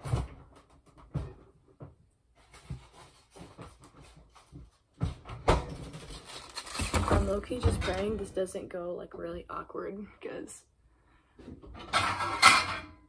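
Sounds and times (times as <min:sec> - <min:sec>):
construction knocks and thumps: 0:00.0 - 0:08.4
clattering: 0:11.6 - 0:13.0.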